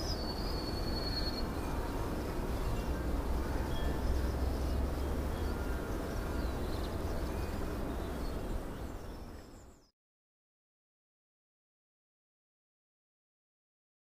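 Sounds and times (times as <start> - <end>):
steady low rumble: 0.0 - 9.3
faint bird chirps: 0.0 - 9.9.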